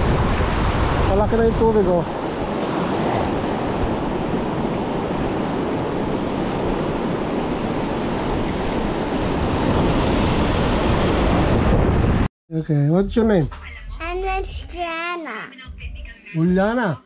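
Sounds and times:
sea surf washing on shore: 0:00.0 - 0:12.3
wind buffeting microphone: 0:00.0 - 0:12.3.

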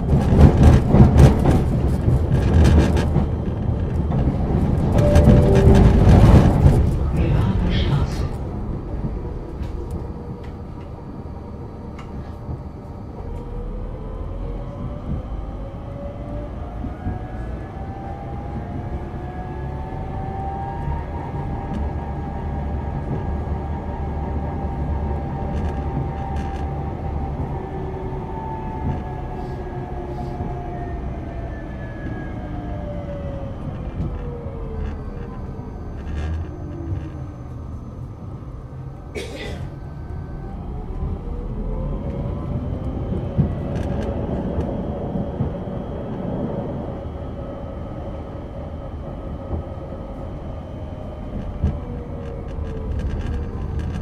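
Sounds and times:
low running rumble: 0:00.0 - 0:10.4
tram electric drive whining: 0:00.0 - 0:54.0.

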